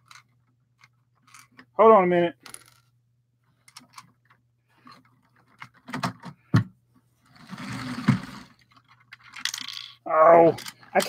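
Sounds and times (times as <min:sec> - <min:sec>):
plastic parts clicking: 0:00.0 - 0:01.7, 0:03.6 - 0:06.4, 0:07.9 - 0:11.0.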